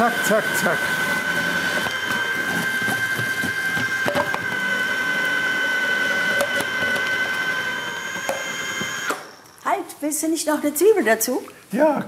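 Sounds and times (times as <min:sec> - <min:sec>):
food processor motor whine: 0:00.0 - 0:09.6.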